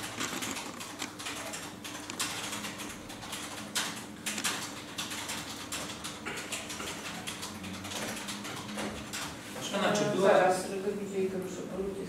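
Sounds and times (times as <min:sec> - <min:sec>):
keyboard typing clicks: 0:00.0 - 0:09.4.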